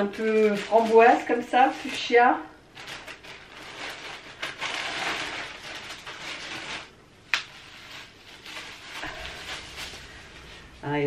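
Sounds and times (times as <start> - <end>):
plastic bag rustling: 0.0 - 11.0
sweater shaken open: 7.6 - 10.8.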